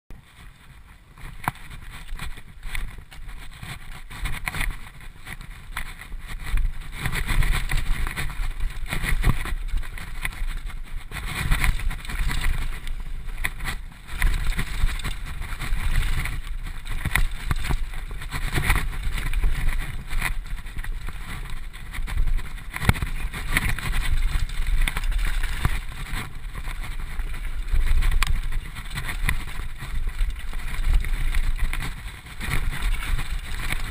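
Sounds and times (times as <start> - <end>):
bike knocking and rattling: 0.1 - 33.9
tyre noise on dirt: 0.2 - 33.9.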